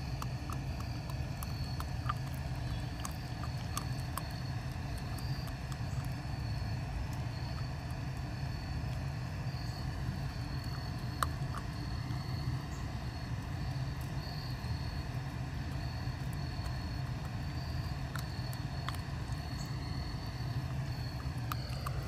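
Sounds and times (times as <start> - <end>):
insect trilling: 0.0 - 22.0.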